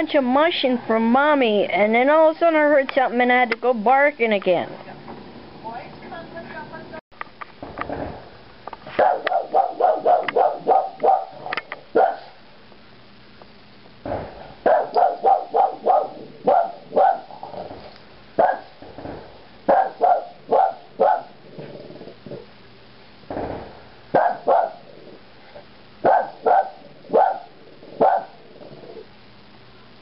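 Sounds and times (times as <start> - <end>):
dog barking: 9.0 - 12.4, 14.6 - 17.4, 18.4 - 18.7, 19.7 - 21.4, 24.1 - 24.9, 26.0 - 28.4.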